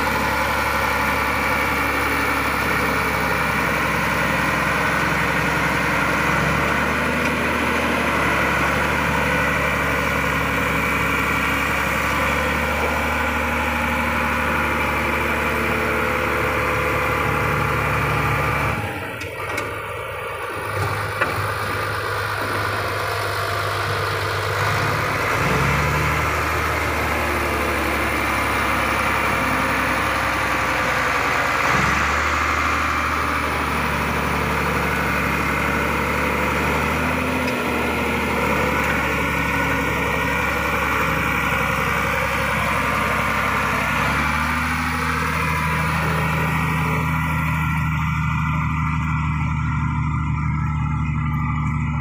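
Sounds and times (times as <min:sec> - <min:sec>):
bulldozer diesel engine running: 0:00.0 - 0:52.0.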